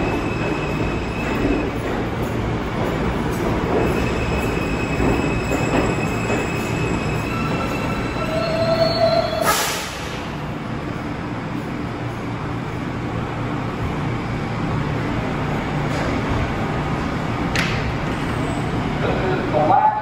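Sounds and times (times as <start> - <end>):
train humming: 0.0 - 20.0
train brake squeal: 3.9 - 10.2
air brake hiss: 9.4 - 10.2.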